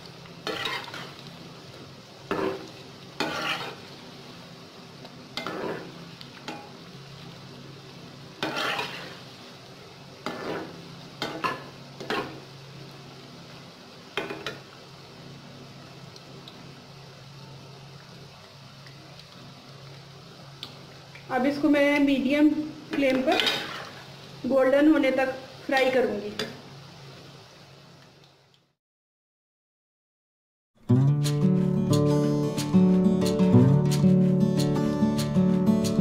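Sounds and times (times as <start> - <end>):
food sizzling in hot oil: 0.0 - 28.5
metal spatula scraping steel pan: 0.4 - 1.2, 3.2 - 3.8, 5.4 - 5.9, 8.4 - 9.2, 10.2 - 12.3, 23.3 - 23.9.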